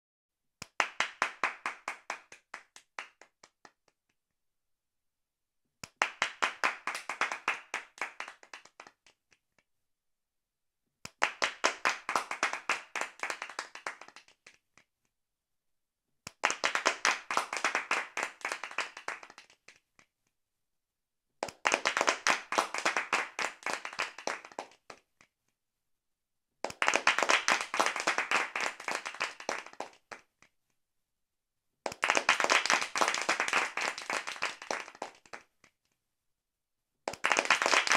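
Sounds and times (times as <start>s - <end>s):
hands clapping fast: 0.6s - 4.2s, 5.8s - 9.6s, 11.0s - 15.1s, 16.3s - 20.3s, 21.4s - 25.4s, 26.6s - 30.8s, 31.8s - 36.0s, 37.1s - 37.9s.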